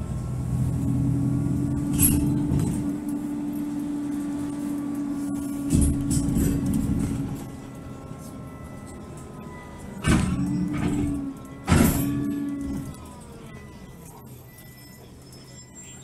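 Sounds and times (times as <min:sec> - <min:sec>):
vehicle engine humming: 0:00.0 - 0:16.0
heavy thump: 0:10.0 - 0:12.3.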